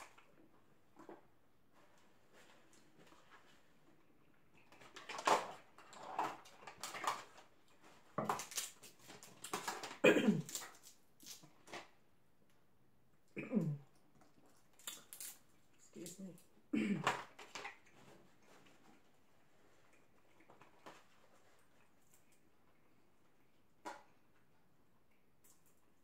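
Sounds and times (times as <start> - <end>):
crab shell cracking: 14.7 - 15.4.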